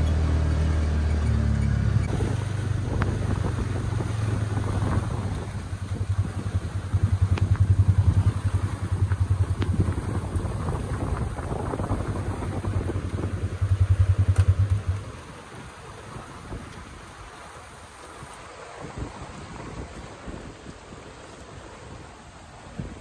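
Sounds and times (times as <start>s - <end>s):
utility vehicle engine running: 0.0s - 18.1s.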